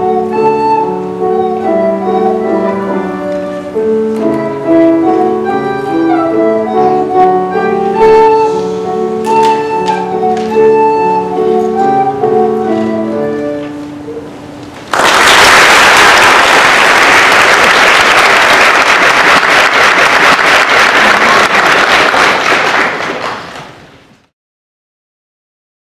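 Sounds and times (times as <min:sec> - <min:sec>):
recorder playing: 0:00.0 - 0:14.6
piano playing: 0:00.0 - 0:15.3
audience applause: 0:14.9 - 0:23.9.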